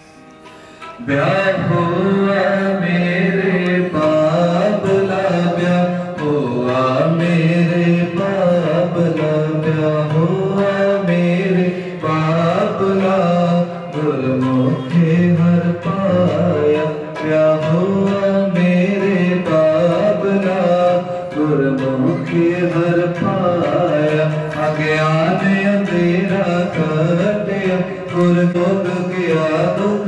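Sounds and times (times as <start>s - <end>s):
harmonium playing hymn melody: 0.0s - 30.0s
tabla: 0.0s - 30.0s.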